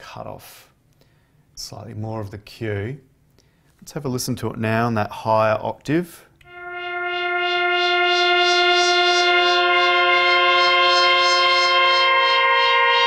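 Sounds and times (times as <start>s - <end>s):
synthesizer pad: 6.5s - 13.0s.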